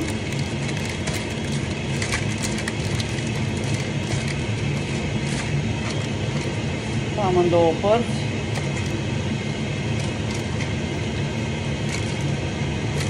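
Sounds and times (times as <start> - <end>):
hands mixing food in paper: 0.0 - 7.6, 8.2 - 13.0
steady low hum: 0.0 - 13.0.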